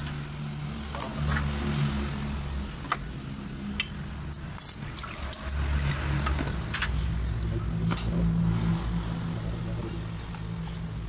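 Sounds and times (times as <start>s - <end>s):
liquid sloshing and splashing: 4.4s - 7.5s.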